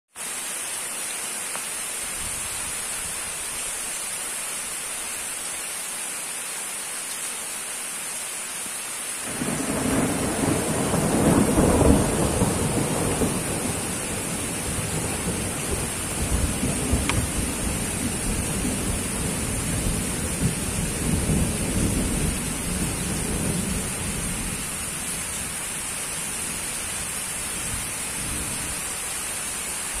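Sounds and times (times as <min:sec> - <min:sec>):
steady hiss: 0:00.2 - 0:09.4
thunder rumbling: 0:09.2 - 0:24.6.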